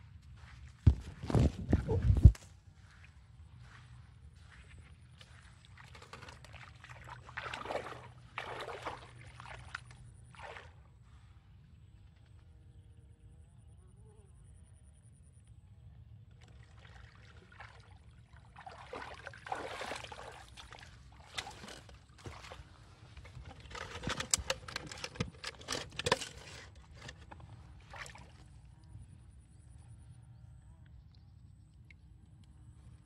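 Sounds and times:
water sloshing and trickling: 0:00.2 - 0:12.4, 0:16.2 - 0:29.7
netting clicks and rustles: 0:23.0 - 0:27.6.

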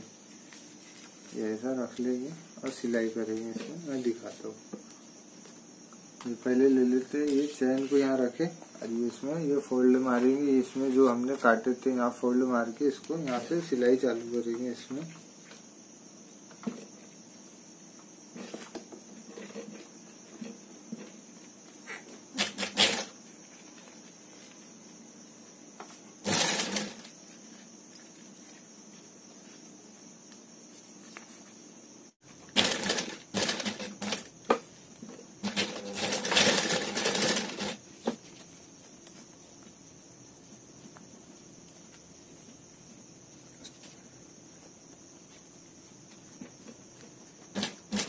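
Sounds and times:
sewing machine stitching: 0:22.4 - 0:23.1, 0:26.2 - 0:27.1, 0:32.5 - 0:34.3, 0:35.4 - 0:37.8, 0:47.5 - 0:48.0.

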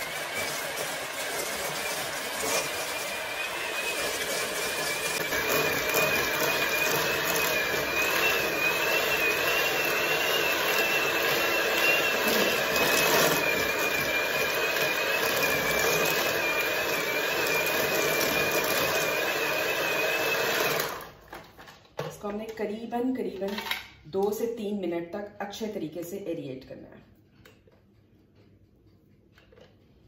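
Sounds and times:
electric beater motor whine: 0:00.0 - 0:21.0.

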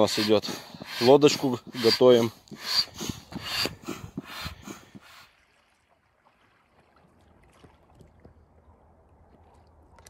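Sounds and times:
faint outdoor hush: 0:00.0 - 0:05.3
rhythmic rasping strokes: 0:00.0 - 0:05.3.

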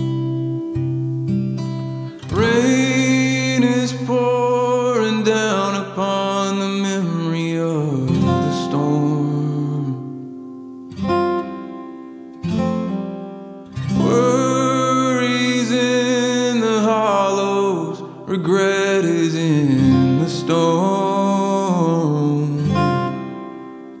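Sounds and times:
strummed acoustic guitar: 0:00.0 - 0:24.0
person singing: 0:02.0 - 0:10.5, 0:13.8 - 0:24.0.

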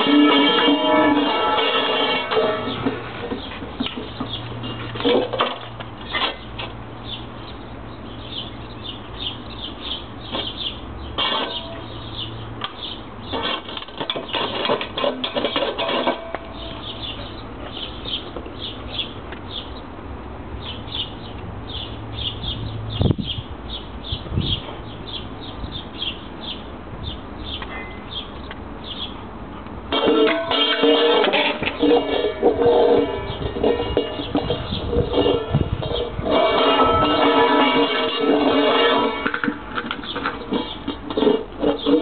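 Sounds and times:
metal bowl clattering on concrete: 0:00.0 - 0:06.7, 0:11.1 - 0:12.1, 0:13.3 - 0:17.2, 0:29.9 - 0:42.0.

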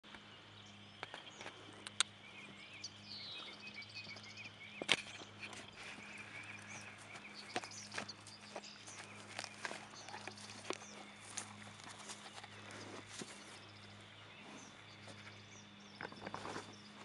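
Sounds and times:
birds chirping: 0:00.0 - 0:17.0
steady low hum: 0:00.1 - 0:17.0
horse trotting over grass: 0:03.3 - 0:13.9.

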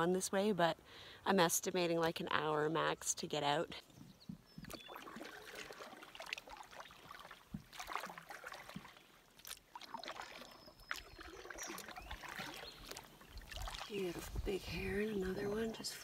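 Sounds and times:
paddle splashing in water: 0:04.3 - 0:14.6
water dripping and trickling: 0:04.5 - 0:14.6.

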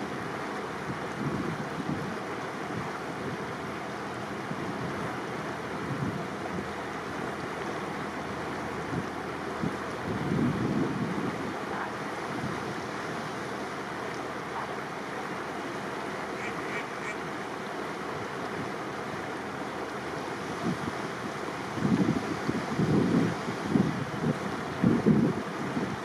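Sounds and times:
wind and water rushing: 0:00.0 - 0:26.0
wind buffeting the microphone: 0:00.8 - 0:03.6, 0:04.3 - 0:07.4, 0:08.2 - 0:13.4, 0:20.2 - 0:26.0.

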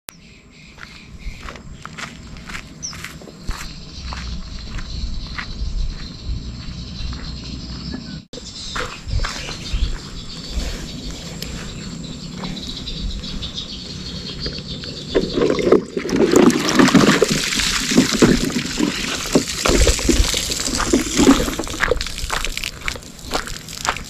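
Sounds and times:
footsteps crunching on gravel: 0:00.8 - 0:13.7, 0:16.2 - 0:24.0
water splashing and sloshing: 0:14.3 - 0:24.0.

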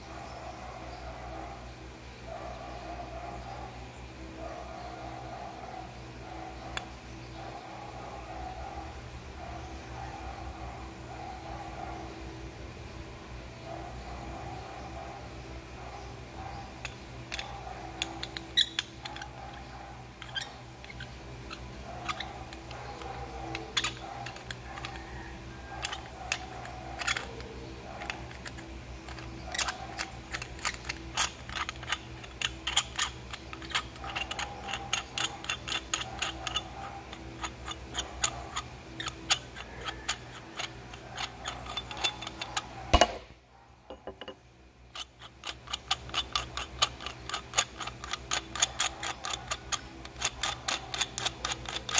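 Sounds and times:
metal parts clicking and tapping: 0:06.6 - 0:06.9, 0:16.6 - 0:43.3, 0:43.9 - 0:51.9.

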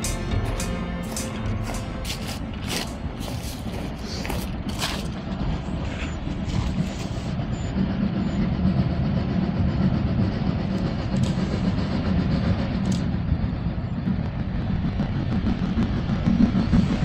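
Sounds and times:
steam train rumbling on track: 0:00.0 - 0:17.0.

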